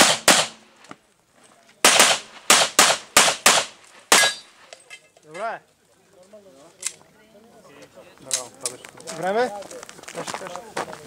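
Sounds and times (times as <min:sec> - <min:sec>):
pistol shots: 0:00.0 - 0:00.7, 0:01.8 - 0:04.5.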